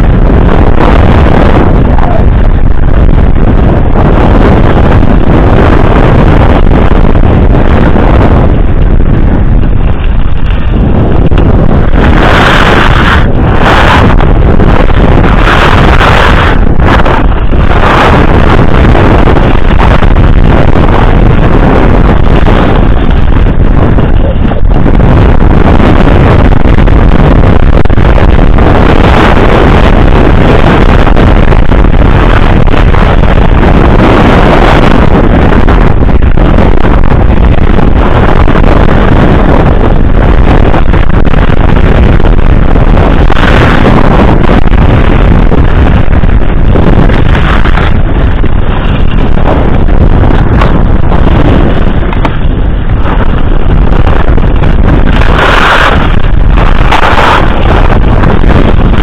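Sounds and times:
wind buffeting microphone: 0.0 - 59.0
skis scraping on snow: 9.3 - 24.8, 43.0 - 59.0.

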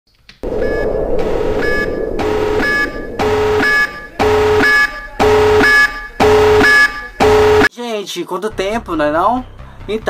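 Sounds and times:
noisy swell: 0.4 - 6.6
pulsing electronic tones: 0.5 - 6.7.

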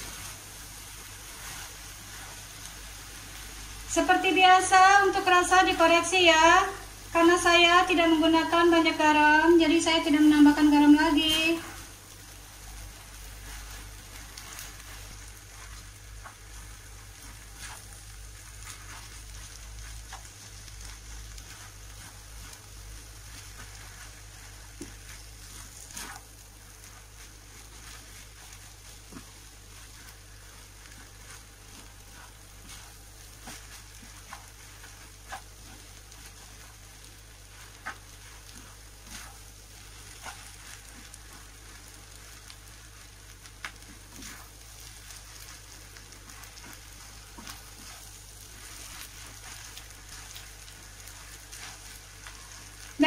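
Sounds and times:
food sizzling in a wok: 0.0 - 53.0
spatula scraping a pan: 12.1 - 53.0.

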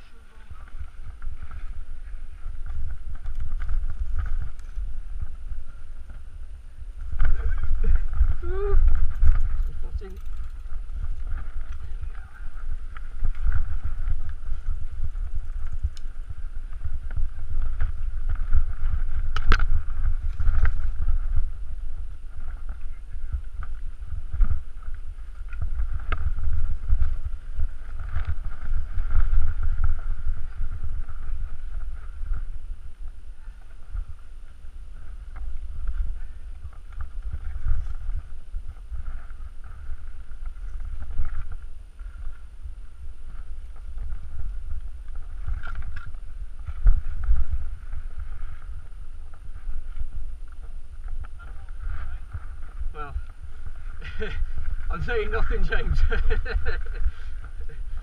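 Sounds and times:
bike tyres rolling over dirt and stones: 0.0 - 58.0
wind rumble on microphone: 0.0 - 58.0
bike rattling with clicks and knocks: 7.0 - 22.8.

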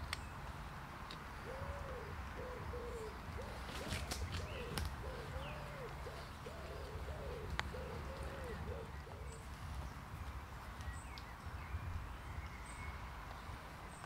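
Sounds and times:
small birds chirping: 0.0 - 14.0
pigeon cooing: 1.4 - 9.6.

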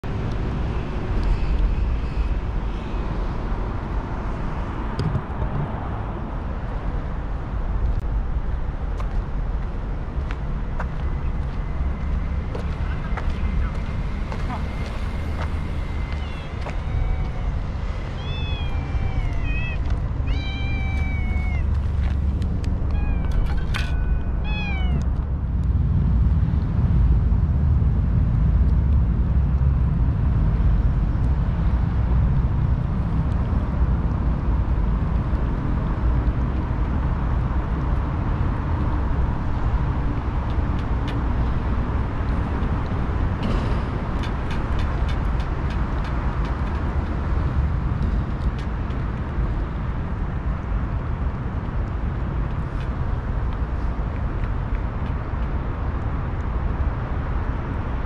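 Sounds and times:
city traffic rumble: 0.0 - 58.0
cat meowing: 16.1 - 21.9, 22.9 - 25.1.

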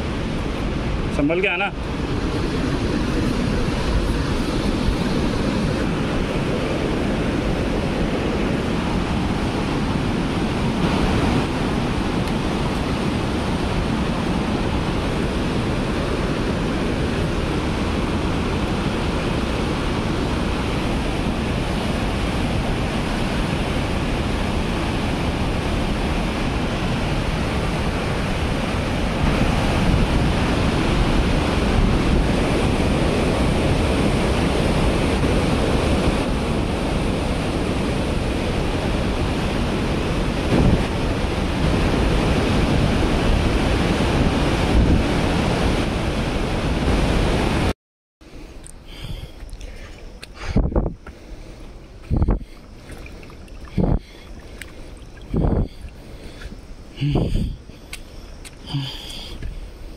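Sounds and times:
fast-flowing river roaring: 0.0 - 47.7.

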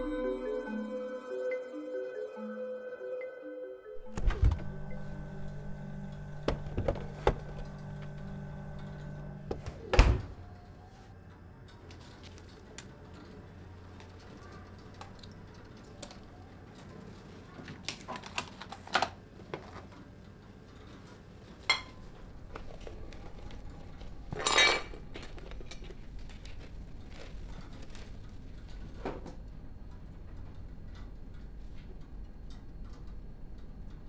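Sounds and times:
crockery and cutlery clattering: 24.3 - 25.1.

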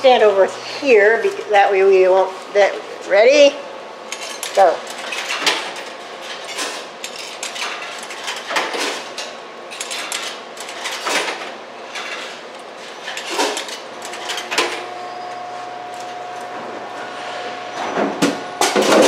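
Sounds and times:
coins clinking through machine: 9.7 - 11.4, 13.0 - 15.0.

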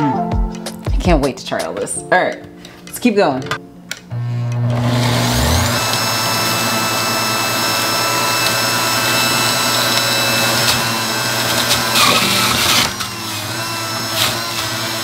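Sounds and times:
juicer motor whining: 4.1 - 15.0.

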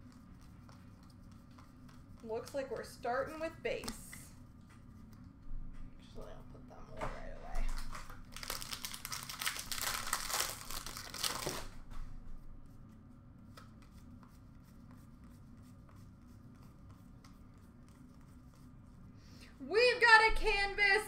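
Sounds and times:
trading cards rustling: 7.7 - 11.7.

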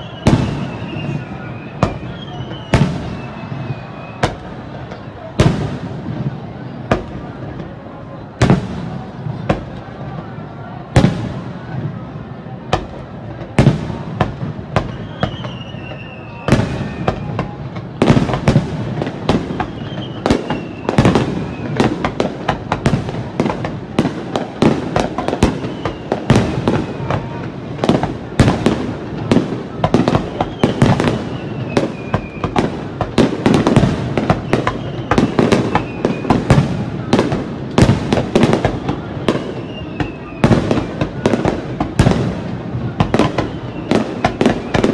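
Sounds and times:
faint falling whistle: 0.0 - 4.5, 14.8 - 17.5, 19.5 - 21.8, 25.3 - 27.4, 30.2 - 32.6, 39.2 - 41.0
firework crackle: 0.0 - 44.9.

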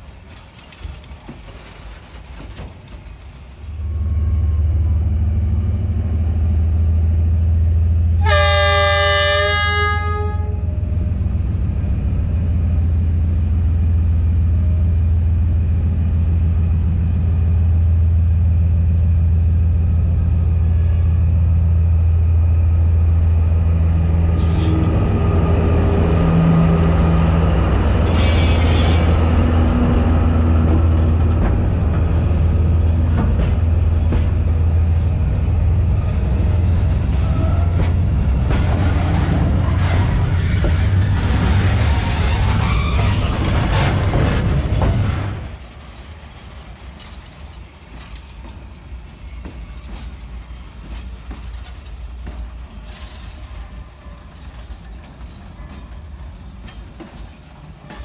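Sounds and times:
diesel locomotive engine drone: 2.6 - 58.0
train horn: 8.2 - 10.7.

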